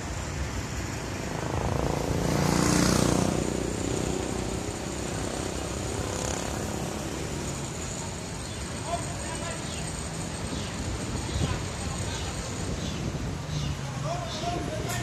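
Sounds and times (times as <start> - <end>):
road traffic: 0.0 - 15.0
vehicle passing close by: 0.9 - 7.7.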